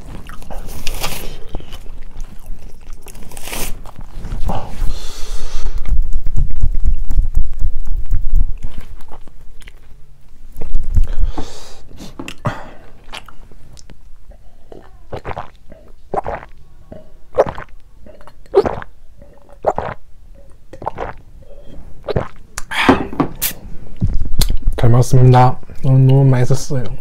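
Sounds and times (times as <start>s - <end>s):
man gulping a drink: 12.2s - 24.6s.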